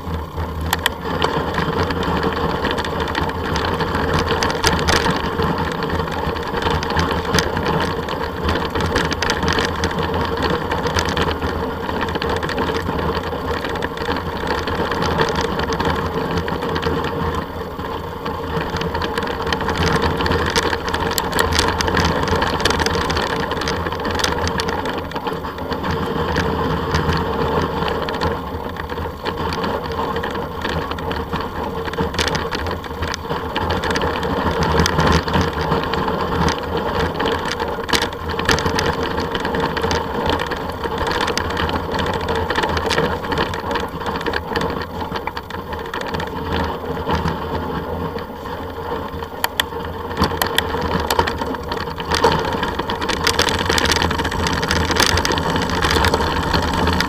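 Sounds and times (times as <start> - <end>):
constant hum: 0.0 - 57.0
rattles and clicks: 0.0 - 57.0
rumbling ride noise: 50.3 - 57.0.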